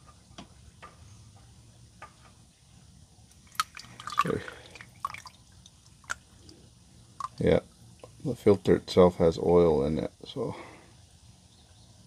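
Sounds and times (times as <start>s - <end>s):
oil dripping and trickling: 1.4s - 8.6s
oil splashing: 3.3s - 8.1s.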